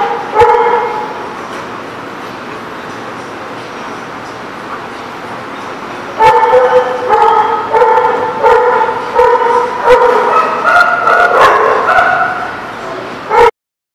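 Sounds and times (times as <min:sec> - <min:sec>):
dog barking: 0:00.0 - 0:01.2, 0:06.2 - 0:12.6, 0:13.3 - 0:13.5.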